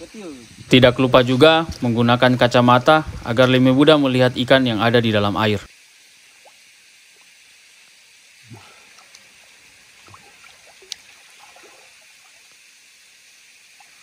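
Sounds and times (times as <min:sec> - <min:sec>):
lake water lapping: 0:08.5 - 0:12.6
soft water splashes: 0:08.6 - 0:12.8.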